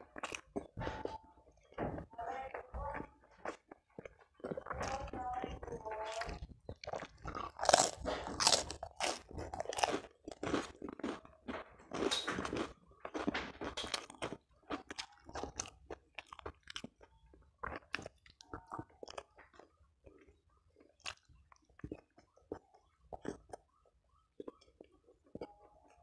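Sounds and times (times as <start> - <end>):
person chewing crunchy food: 0.0 - 26.0
mouth clicks and smacks: 12.4 - 26.0.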